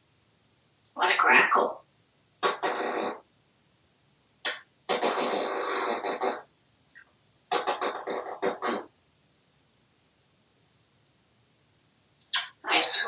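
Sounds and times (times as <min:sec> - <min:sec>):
parrot raspy vocal sounds: 0:01.0 - 0:03.3, 0:04.4 - 0:08.9, 0:12.3 - 0:13.0.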